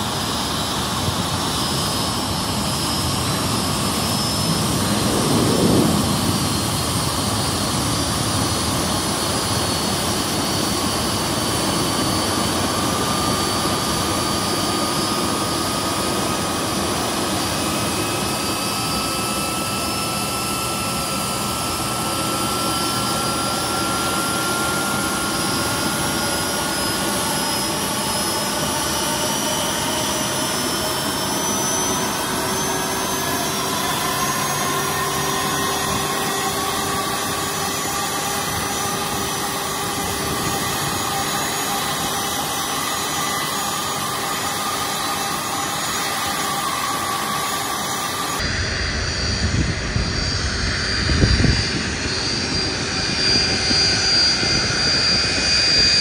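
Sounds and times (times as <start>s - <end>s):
jet engine running: 0.0s - 56.0s.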